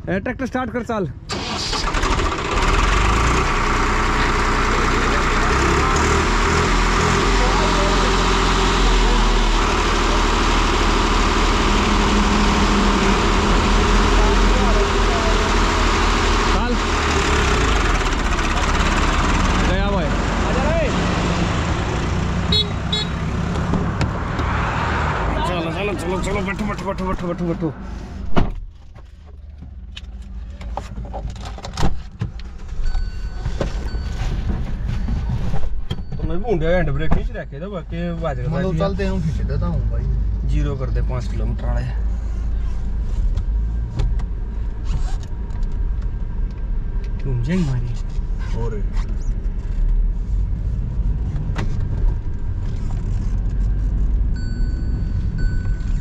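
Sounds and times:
tractor diesel engine running: 1.2 - 24.3.

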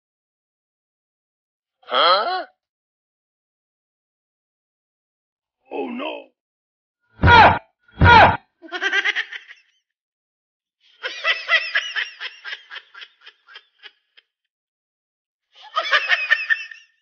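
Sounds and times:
loud short cries: 7.2 - 8.4
person laughing: 7.2 - 9.6.

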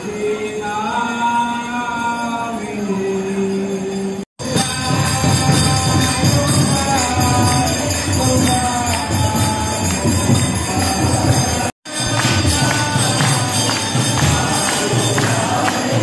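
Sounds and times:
voices singing a chant: 4.4 - 16.0.

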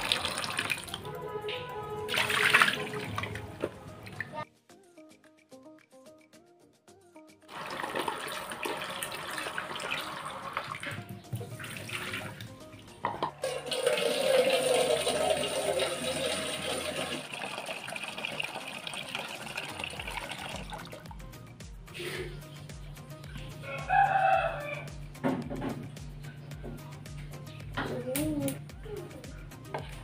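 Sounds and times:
tap water filling metal pot: 0.0 - 1.1, 2.1 - 3.8, 7.5 - 21.1.

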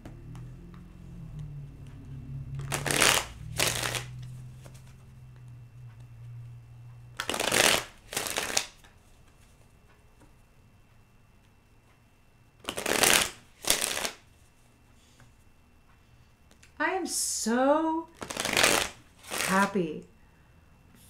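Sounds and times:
cards being shuffled: 2.6 - 5.5, 7.2 - 9.5, 12.6 - 14.3, 18.1 - 19.8.

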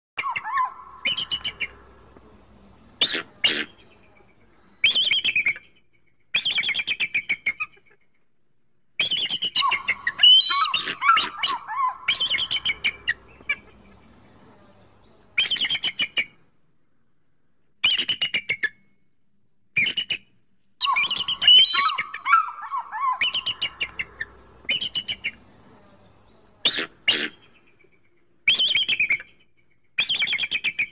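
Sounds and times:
eagle chattering whistles: 9.1 - 13.2, 20.8 - 25.4.

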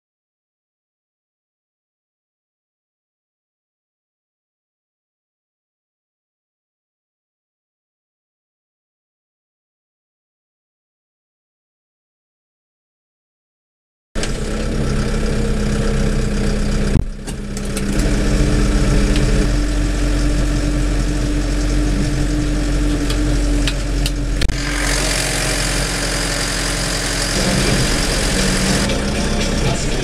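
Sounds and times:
tractor diesel engine running: 14.2 - 30.0.

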